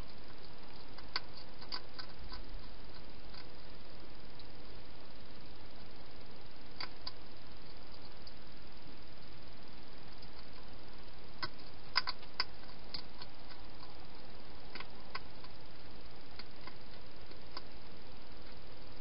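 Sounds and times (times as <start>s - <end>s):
hedgehog eating crisp clicks: 0.0s - 3.7s, 6.7s - 8.4s, 10.1s - 10.7s, 11.4s - 15.6s, 16.3s - 17.8s
steady hiss: 0.0s - 19.0s.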